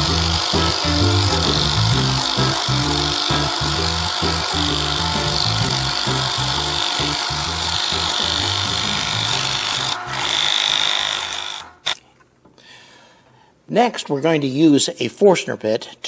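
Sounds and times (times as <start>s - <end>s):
drill press boring into wood: 0.0s - 12.0s.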